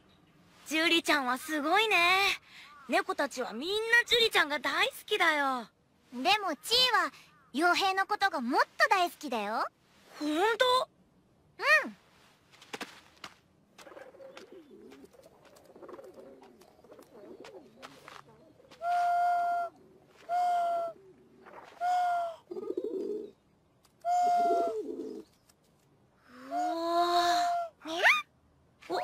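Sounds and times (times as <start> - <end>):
pigeons cooing: 13.8 - 23.4, 24.1 - 25.3.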